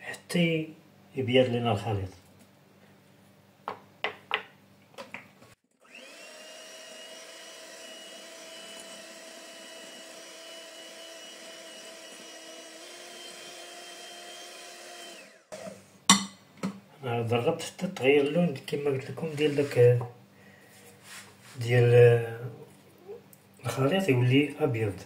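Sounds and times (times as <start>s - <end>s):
electric hand mixer running: 5.8s - 15.8s.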